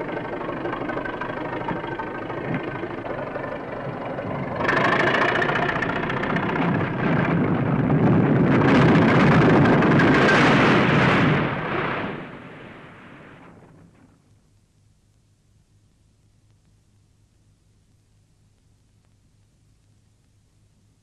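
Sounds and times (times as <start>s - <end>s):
engine running: 0.0s - 10.6s
rumble of collapsing masonry: 0.0s - 14.3s.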